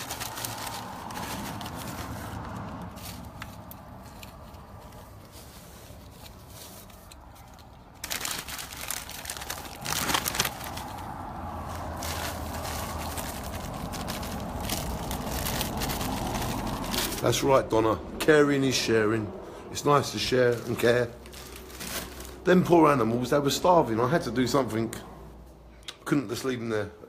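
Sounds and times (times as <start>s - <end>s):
crinkling food packaging: 0.0s - 17.4s, 20.2s - 22.8s.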